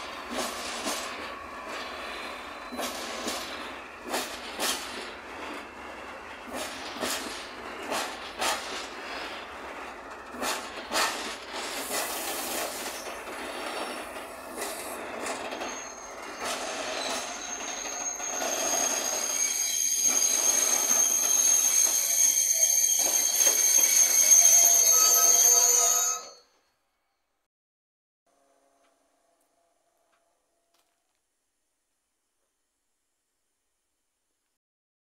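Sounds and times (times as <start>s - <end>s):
train wheels clattering over rails: 0.0s - 19.2s
high wheel squeal: 14.7s - 26.5s.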